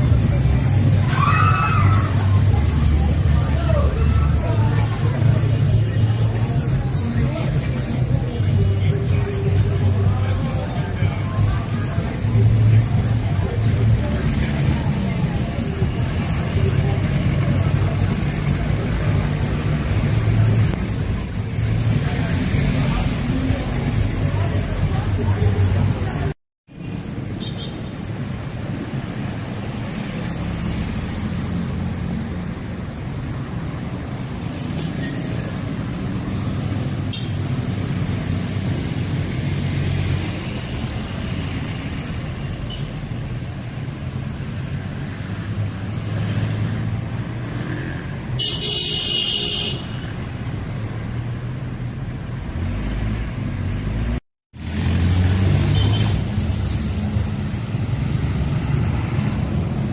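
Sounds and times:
street traffic rumble: 0.0 - 59.9
vehicle horn: 48.4 - 50.2, 55.7 - 56.2.

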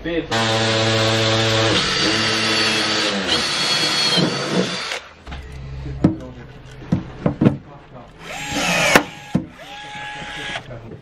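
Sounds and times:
cordless drill drilling into metal: 0.3 - 5.1, 8.2 - 10.7.

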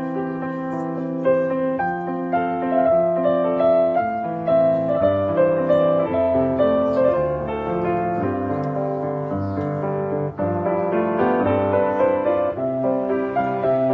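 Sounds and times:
piano music: 0.0 - 13.9.

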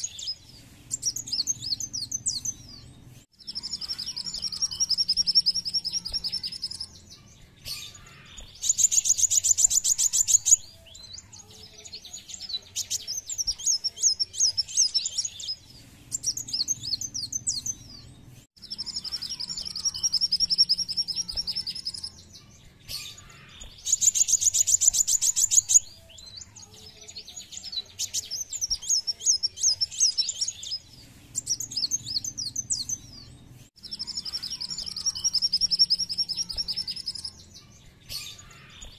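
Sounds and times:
bird buzzy trill: 0.0 - 11.3, 12.3 - 26.0
twittering bird chirps: 0.0 - 38.9.

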